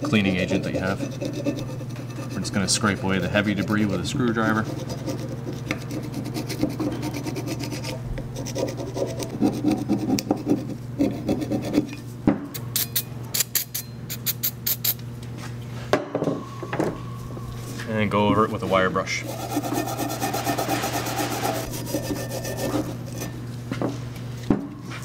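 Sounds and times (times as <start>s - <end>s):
screwdriver scraping metal: 19.2s - 23.4s.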